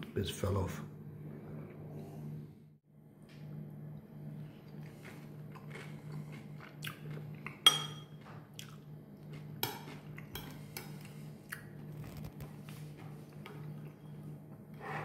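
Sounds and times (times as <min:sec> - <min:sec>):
steady low hum: 0:00.0 - 0:15.0
chewing crunchy croutons: 0:04.6 - 0:07.6, 0:08.5 - 0:14.0
spoon clinking ceramic bowl: 0:07.6 - 0:08.2.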